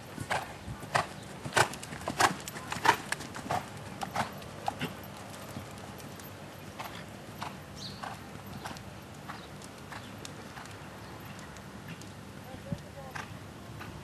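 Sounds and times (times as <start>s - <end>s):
horse hoofbeats on dirt: 0.0s - 14.0s.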